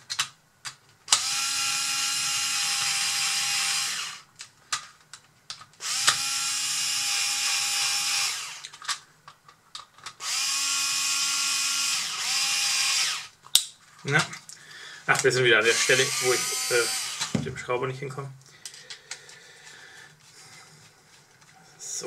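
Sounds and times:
electric screwdriver whine: 1.1 - 4.3, 5.8 - 8.7, 10.2 - 13.3, 15.6 - 17.4.

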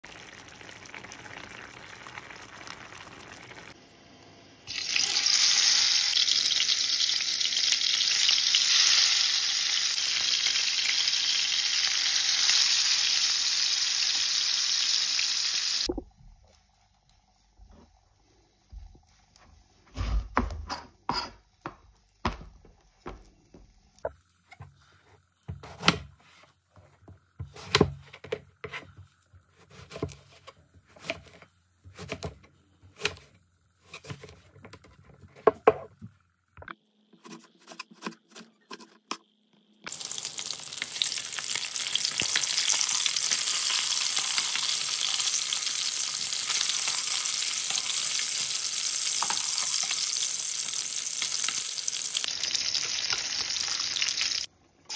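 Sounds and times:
fish sizzling in hot oil: 0.1 - 3.8, 4.7 - 15.9, 39.9 - 54.5.

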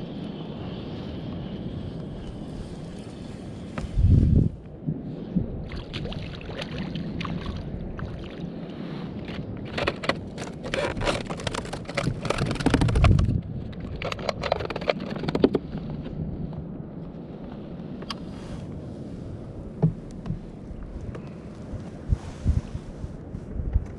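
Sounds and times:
wind buffeting microphone: 0.0 - 23.9
water lapping against hull: 4.9 - 13.2
rapid clicking and scraping: 9.6 - 16.1.

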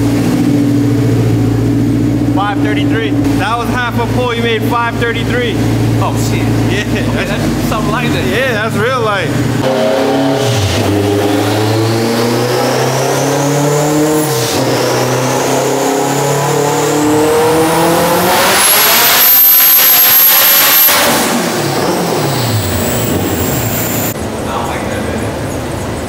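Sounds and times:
car engine revving at full throttle: 0.0 - 24.4
high whine: 0.0 - 26.0.

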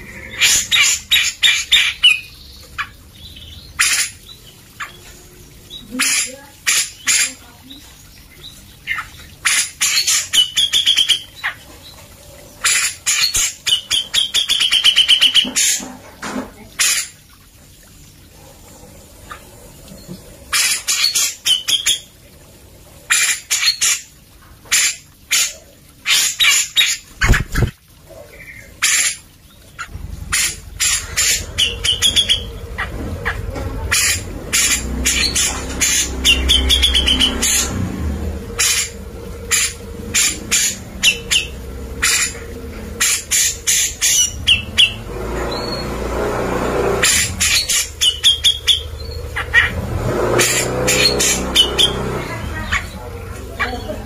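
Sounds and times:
bird harsh calls: 0.0 - 7.5, 8.5 - 16.0, 20.4 - 22.1, 24.7 - 46.0, 46.9 - 54.0
low rumble: 29.9 - 47.5.

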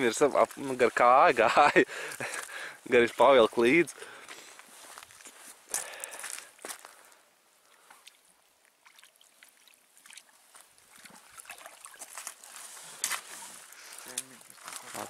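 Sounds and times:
water trickling: 0.0 - 15.0
rope rustling and scraping: 11.8 - 15.0.

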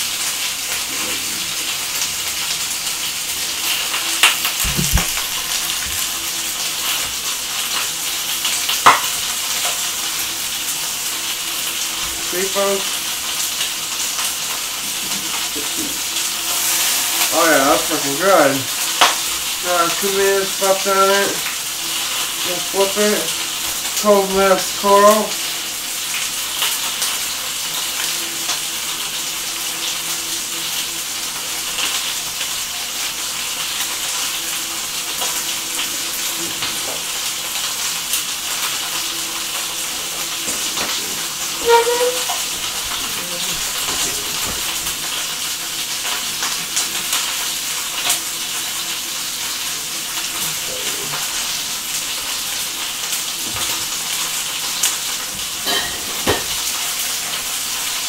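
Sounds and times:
chicken frying in a skillet: 0.0 - 58.0.

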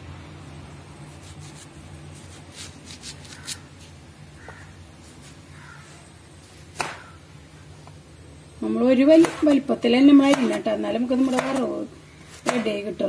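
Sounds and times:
knife scraping banana: 1.0 - 4.0.

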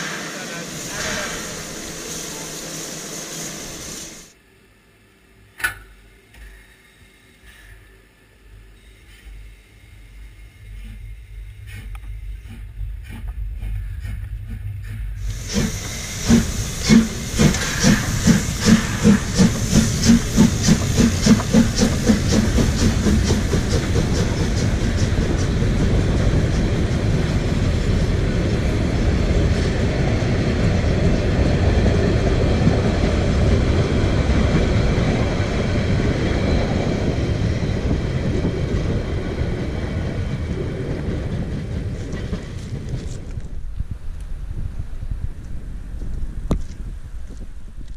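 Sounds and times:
steam locomotive exhaust chuffs: 0.0 - 4.3, 8.8 - 43.2
steam hissing: 0.0 - 4.4, 14.8 - 31.6
train rumbling past: 0.0 - 4.4, 7.5 - 47.9.

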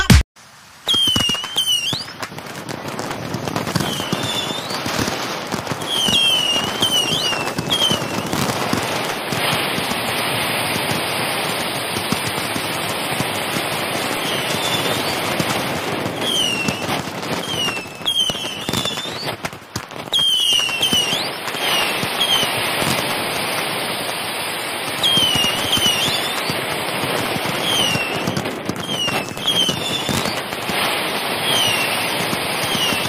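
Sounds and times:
fireworks crackling and banging: 0.0 - 33.0
fireworks whistling: 0.0 - 33.0.

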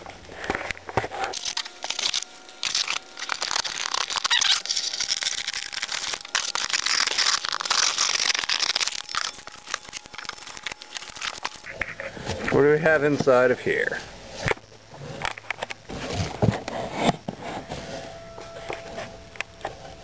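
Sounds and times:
cardboard box crinkling and tearing: 0.3 - 12.5, 14.4 - 17.8.

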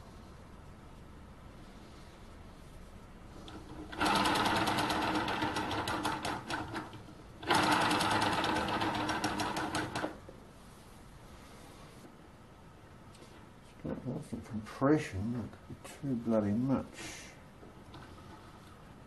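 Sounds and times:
model engine mechanism clattering: 3.5 - 10.2.

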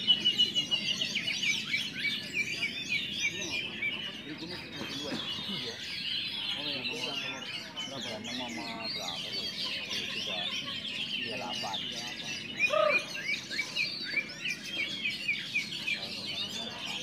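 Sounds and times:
birds chirping and whistling: 0.0 - 17.0
lower-pitched bird call: 12.4 - 15.8.

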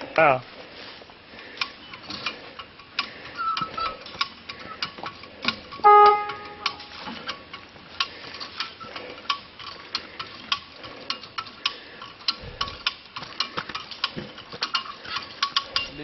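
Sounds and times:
ratchet winch clicking: 6.5 - 16.0.

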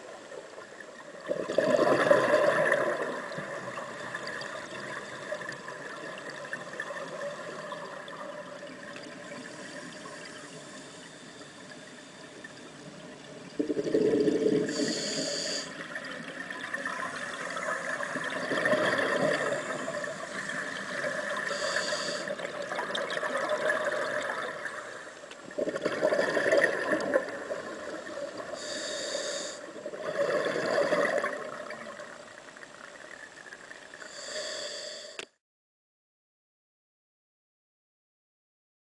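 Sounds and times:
steady watery hiss: 0.0 - 35.4
gurgling exhaled bubbles: 1.2 - 9.5, 13.4 - 15.0, 15.9 - 24.8, 25.5 - 28.6, 29.8 - 32.2
regulator inhale hiss: 9.2 - 13.0, 13.6 - 15.9, 19.4 - 22.6, 28.0 - 30.3, 34.0 - 35.4.

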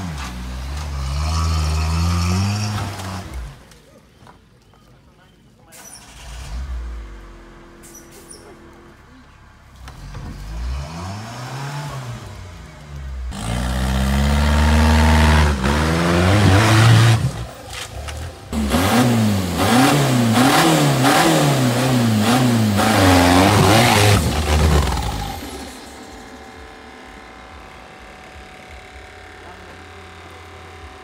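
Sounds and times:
engine revving hard: 0.0 - 3.6, 9.8 - 17.5, 18.5 - 27.7.

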